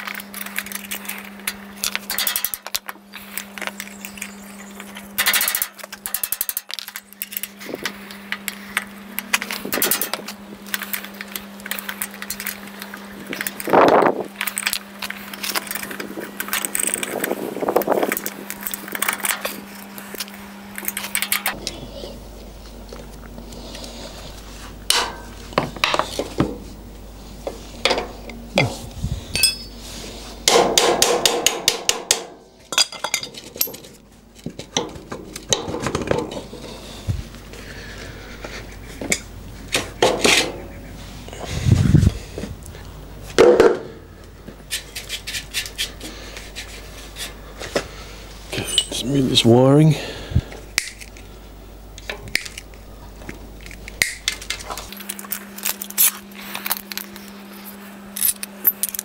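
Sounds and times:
metal clinks and taps: 29.4s - 29.8s.

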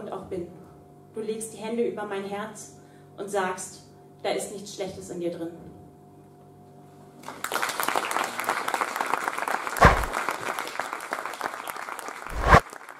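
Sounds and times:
faint steady hum: 0.0s - 7.4s
audience applause: 7.2s - 12.9s
loud thump: 9.8s - 10.1s, 12.3s - 12.6s.

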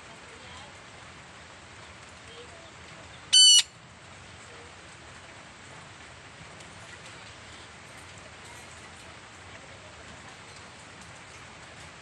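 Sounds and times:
parrot call: 3.3s - 3.7s.

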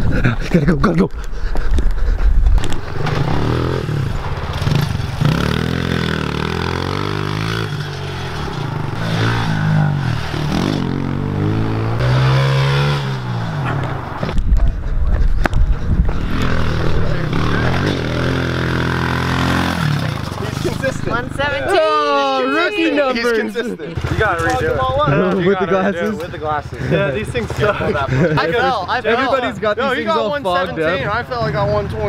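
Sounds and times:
pit bike engine revving: 2.6s - 14.8s, 15.7s - 21.8s
microphone rumble: 13.3s - 18.8s.

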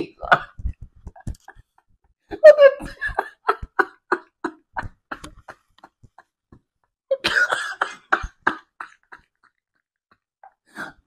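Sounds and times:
man laughing: 1.2s - 6.3s, 7.1s - 9.8s.

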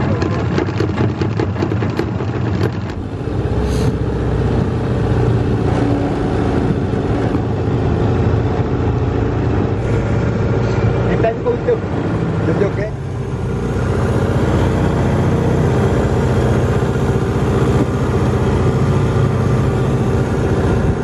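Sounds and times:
quick knocks: 0.0s - 3.1s
motorboat engine running: 0.0s - 21.0s
water and wind rushing: 0.0s - 21.0s.

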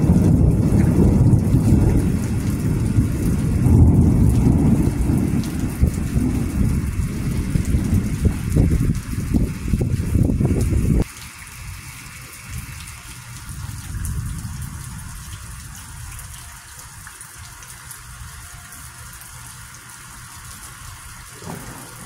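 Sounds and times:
gusty wind: 0.0s - 11.1s
low thunder rumble: 0.0s - 11.1s, 13.3s - 16.4s, 21.3s - 22.0s
rain hissing: 0.0s - 22.0s.

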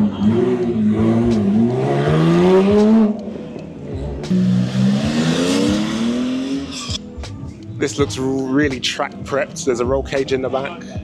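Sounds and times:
car engines revving: 0.0s - 7.3s.

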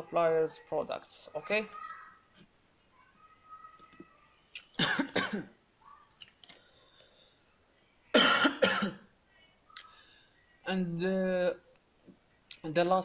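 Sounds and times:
person coughing: 4.8s - 5.6s, 8.1s - 9.0s.

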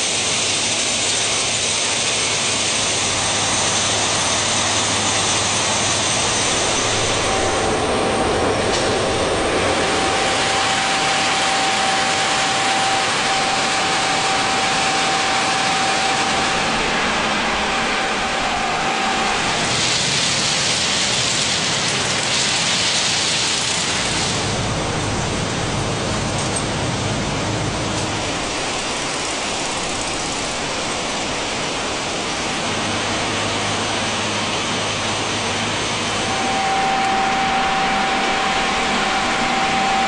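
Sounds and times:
train rushing rumble: 0.0s - 40.0s
thin steady tone: 35.4s - 40.0s.

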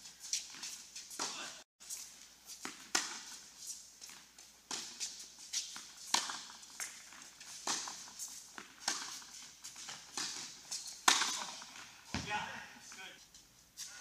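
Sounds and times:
tennis rackets striking ball: 2.6s - 3.4s, 4.1s - 12.6s
tennis ball bouncing: 2.6s - 3.5s, 4.1s - 12.6s.

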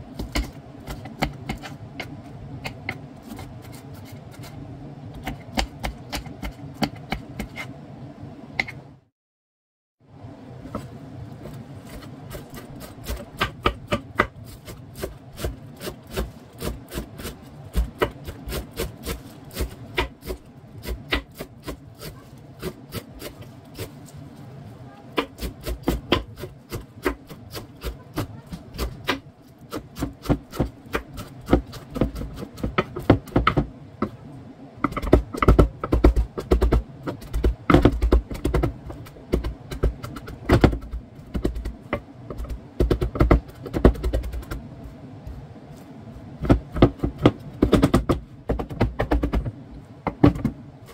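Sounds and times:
knife chopping on wooden board: 25.2s - 33.7s, 46.4s - 49.5s.

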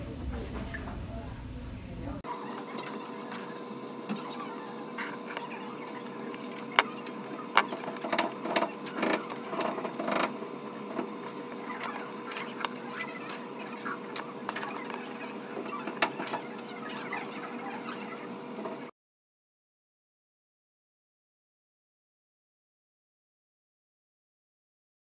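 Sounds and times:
steady hum: 0.0s - 18.9s.

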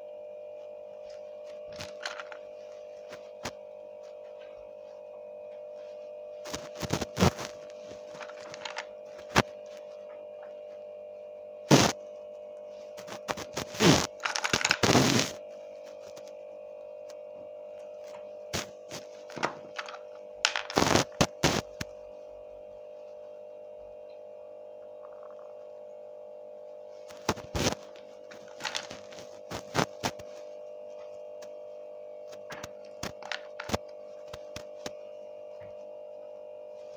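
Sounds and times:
steady hum: 0.0s - 36.9s
plastic toys knocking on table: 19.4s - 20.8s.

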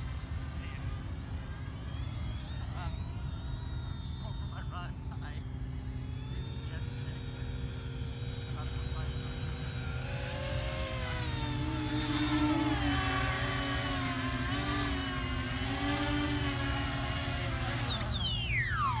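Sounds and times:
model plane electric motors whining: 0.0s - 19.0s.

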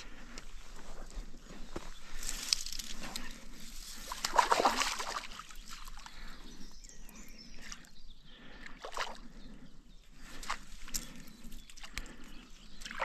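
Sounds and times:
fish splashing in water: 4.1s - 6.0s.

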